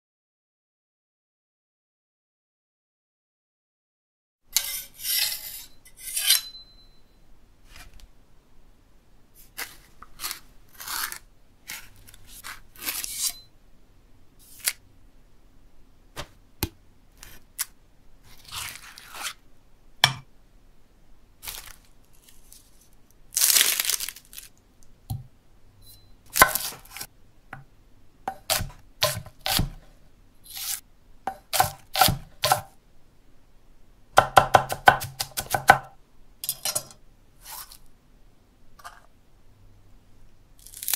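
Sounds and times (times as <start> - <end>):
cutting and tearing sounds: 9.4 - 13.4, 30.5 - 30.8, 40.6 - 40.9
knife chopping on wooden block: 28.3 - 29.8, 31.3 - 32.7, 34.2 - 35.9.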